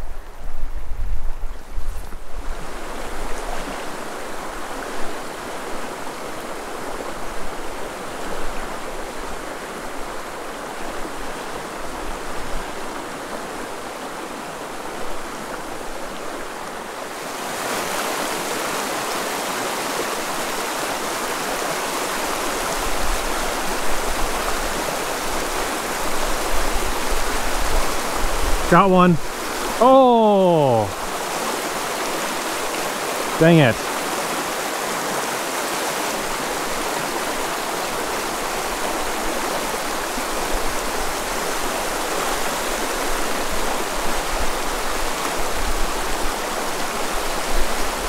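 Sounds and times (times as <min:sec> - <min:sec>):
creek rushing over gravel: 0:17.1 - 0:28.3, 0:29.3 - 0:48.0.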